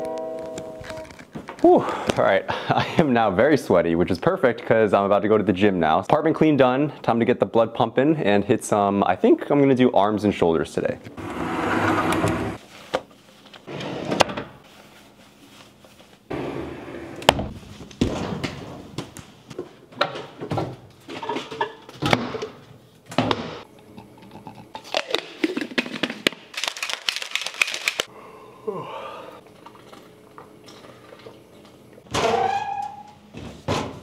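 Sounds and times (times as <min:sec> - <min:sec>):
cabinet doors: 0:11.2 - 0:12.6
closet door sliding: 0:11.2 - 0:12.6, 0:13.7 - 0:14.5.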